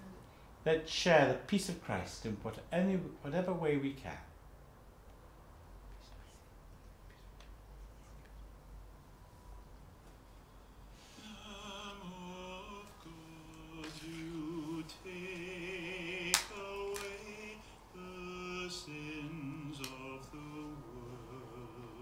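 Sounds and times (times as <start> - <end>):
slow sung melody: 10.4 - 22.0
sharp clicks: 19.8 - 20.0.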